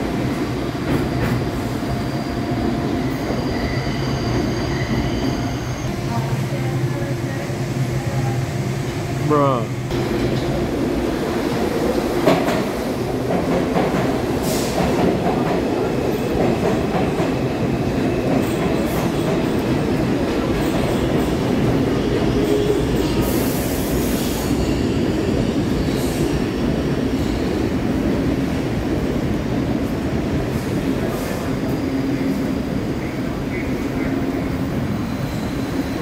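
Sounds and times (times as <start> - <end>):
train wheels rumbling on rails: 0.0 - 36.0.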